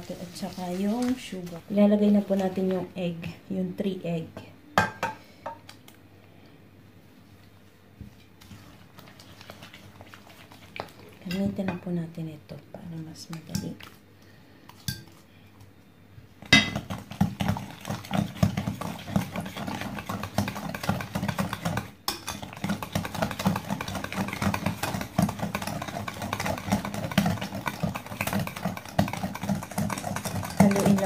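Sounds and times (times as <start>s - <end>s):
whisk rattling against a bowl: 16.7s - 31.0s.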